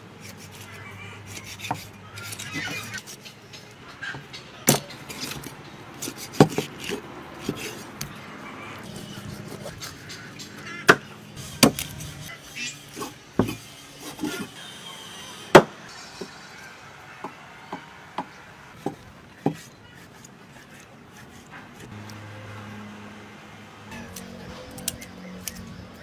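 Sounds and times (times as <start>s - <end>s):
cleaver chopping on wooden block: 4.7s - 7.7s, 10.9s - 11.9s.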